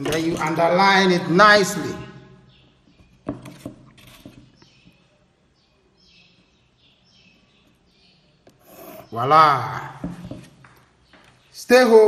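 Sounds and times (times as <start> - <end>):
pencil scraping on paper: 3.3 - 4.6, 8.5 - 9.2.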